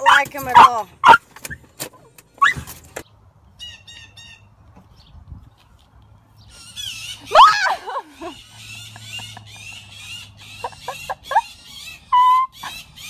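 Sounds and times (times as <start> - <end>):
bird calls: 6.4 - 13.0.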